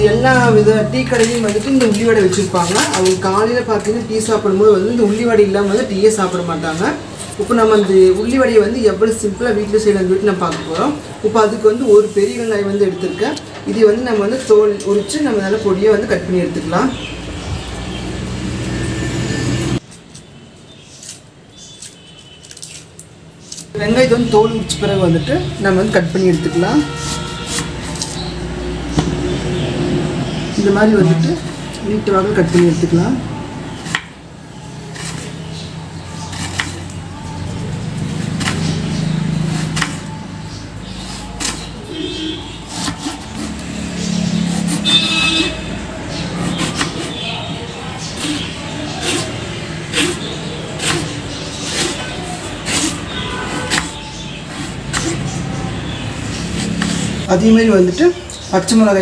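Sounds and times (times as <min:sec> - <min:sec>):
knife peeling onion skin: 0:19.8 - 0:23.8, 0:26.4 - 0:28.4, 0:34.7 - 0:35.5, 0:36.2 - 0:37.0, 0:37.9 - 0:40.2, 0:40.9 - 0:47.3, 0:48.1 - 0:57.2.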